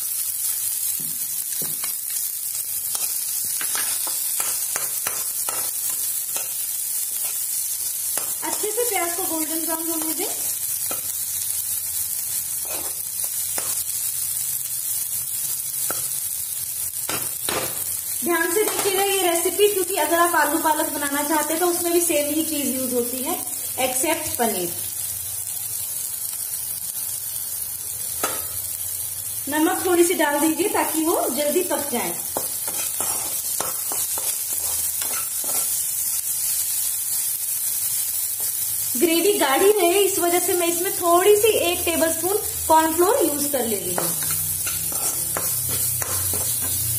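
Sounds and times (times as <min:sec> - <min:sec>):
vegetables sizzling in hot oil: 0:00.0 - 0:46.9
metal spatula scraping pan: 0:12.6 - 0:13.0, 0:32.4 - 0:35.8, 0:44.0 - 0:46.8.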